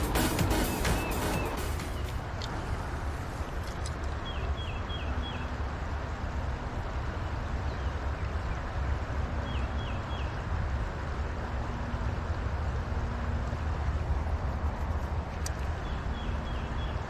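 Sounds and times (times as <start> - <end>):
bird chirping: 0.0 - 2.5, 4.2 - 5.6, 9.4 - 10.5, 15.8 - 17.0
low outdoor rumbling: 0.0 - 17.0.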